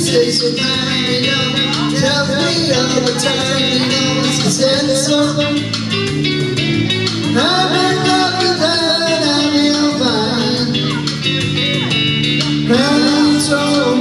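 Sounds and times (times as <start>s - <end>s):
man singing into microphone: 0.0s - 6.1s, 7.3s - 14.0s
karaoke backing track: 0.0s - 14.0s.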